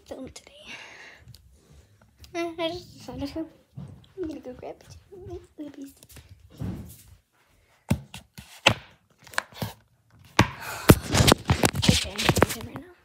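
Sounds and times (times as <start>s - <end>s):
rustling and clattering on microphone: 11.0s - 13.0s.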